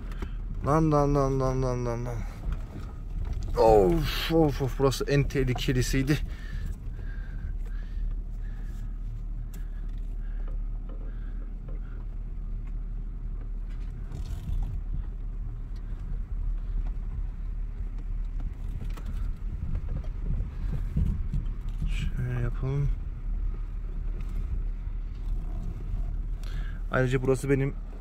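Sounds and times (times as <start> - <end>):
car rumbling over dirt road: 0.0 - 28.0.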